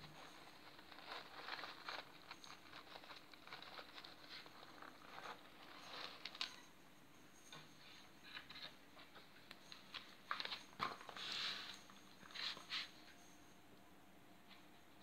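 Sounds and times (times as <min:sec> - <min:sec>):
kittens scratching in litter: 0:00.0 - 0:06.7, 0:10.3 - 0:13.1.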